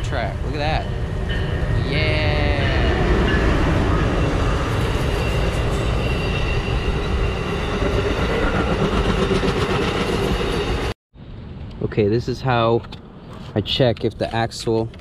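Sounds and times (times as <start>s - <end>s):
train wheels rumbling on rails: 0.1s - 10.9s.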